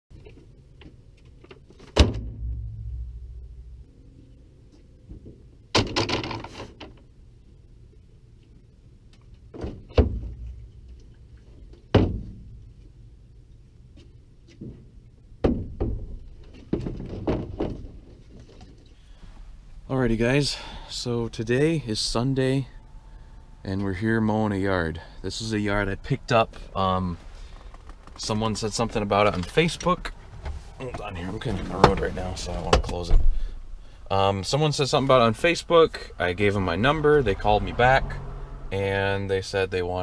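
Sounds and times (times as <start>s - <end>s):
rustling clatter: 26.5s - 32.8s.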